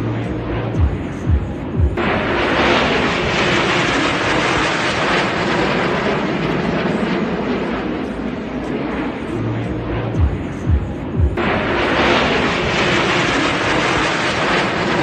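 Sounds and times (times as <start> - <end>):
aircraft engines rushing overhead: 0.0 - 15.0.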